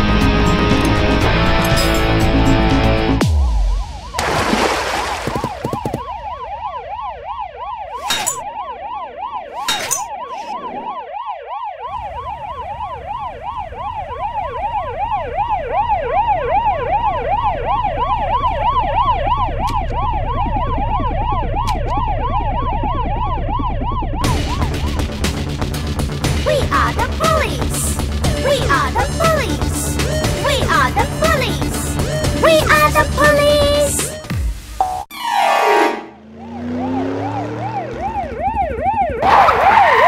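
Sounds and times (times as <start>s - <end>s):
police siren yelping: 5.4s - 25.1s, 35.1s - 40.0s.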